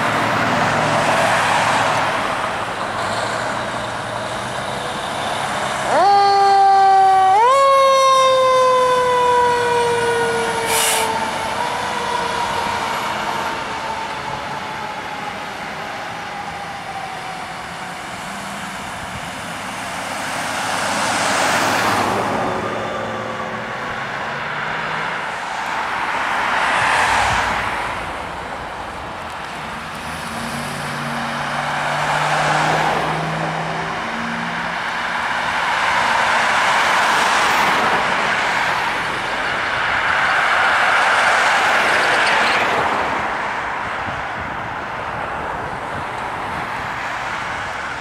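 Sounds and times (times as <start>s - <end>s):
vehicles passing by: 0.0s - 48.0s
deep engine hum of ambulance: 3.6s - 19.3s.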